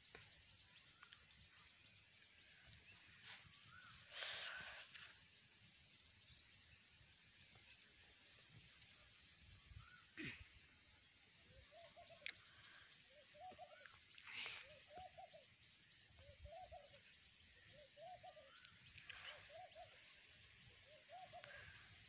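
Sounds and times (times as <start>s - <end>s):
faint bird calls: 2.5s - 5.4s, 9.5s - 10.8s, 11.4s - 22.0s.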